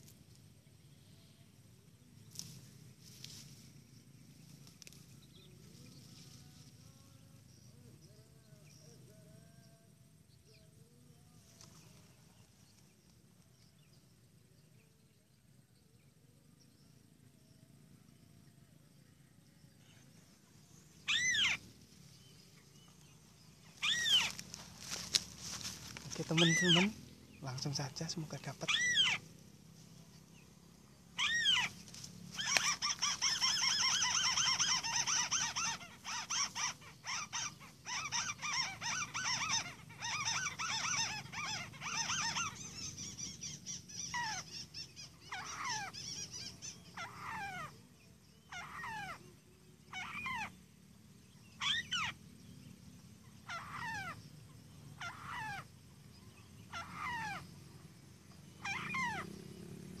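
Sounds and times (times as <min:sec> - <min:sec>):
bird calling: 0:19.4 - 1:00.0
bird chattering: 0:20.8 - 0:29.3, 0:31.1 - 0:47.8, 0:49.8 - 0:50.6, 0:51.5 - 0:52.2, 0:53.2 - 0:59.6.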